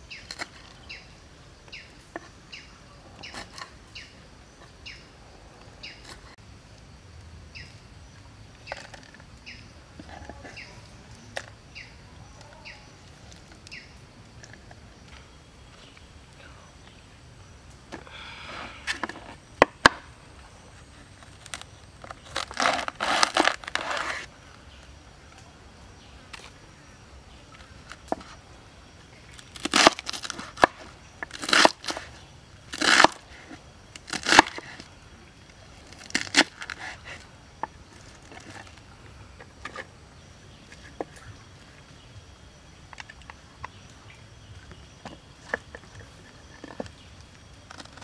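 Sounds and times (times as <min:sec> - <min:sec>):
cabbage leaves snapping: 0:21.2 - 0:24.3, 0:29.3 - 0:32.1, 0:32.7 - 0:33.3, 0:34.0 - 0:34.8, 0:35.8 - 0:37.1.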